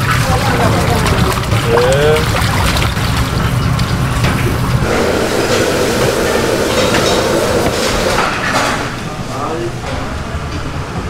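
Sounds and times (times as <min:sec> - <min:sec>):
tap water spraying: 0:00.0 - 0:08.4
kitchen machine hum: 0:00.0 - 0:11.0.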